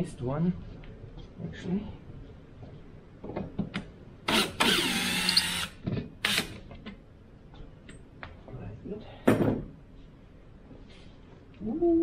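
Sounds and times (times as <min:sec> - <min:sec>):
cordless drill motor whining: 0:04.3 - 0:06.5
drill bit clicks: 0:04.3 - 0:06.6.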